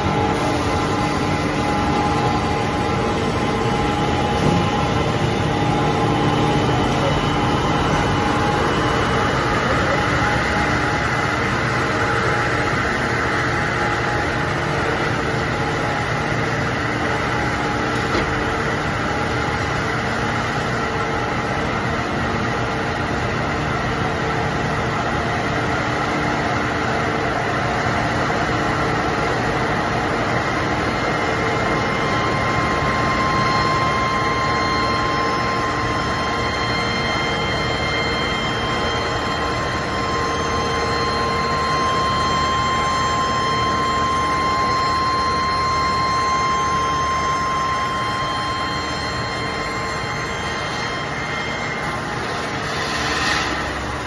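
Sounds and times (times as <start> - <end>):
furnace drone: 0.0 - 54.0
hum tones: 31.7 - 54.0
hiss: 52.6 - 53.9.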